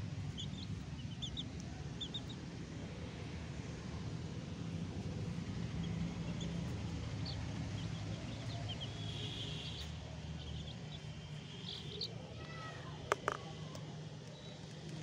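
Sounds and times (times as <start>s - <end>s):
chick peeping: 0.3s - 2.4s, 6.2s - 12.1s.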